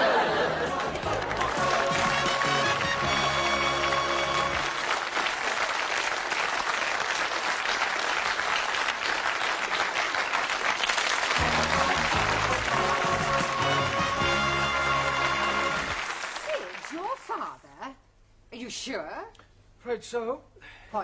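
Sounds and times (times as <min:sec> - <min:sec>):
sitcom theme music: 0:00.0 - 0:04.8, 0:11.4 - 0:16.4
studio audience applause: 0:00.0 - 0:17.5.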